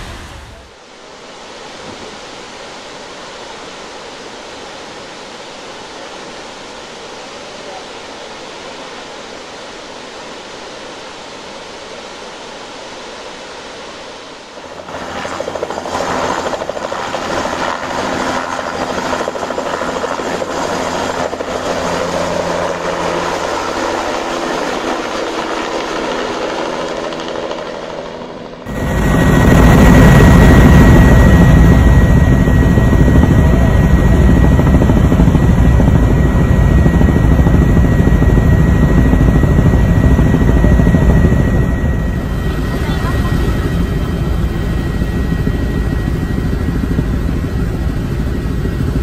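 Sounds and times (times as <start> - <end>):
helicopter engine and rotor: 14.5 - 49.0.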